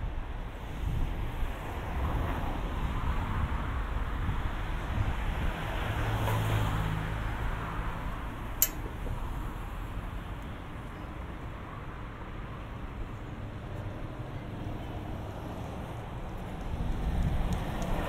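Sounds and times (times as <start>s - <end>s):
road noise: 0.0s - 18.0s
sharp click: 8.6s - 8.9s.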